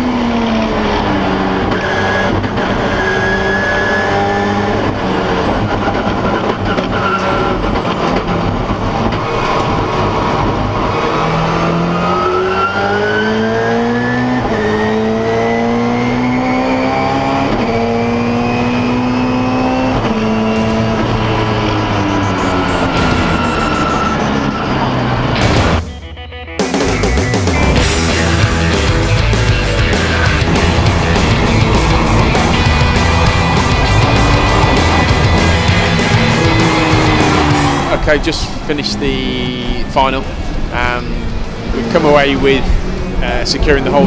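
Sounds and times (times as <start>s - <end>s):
turbocharged race car engine: 0.0s - 25.8s, 26.8s - 44.0s.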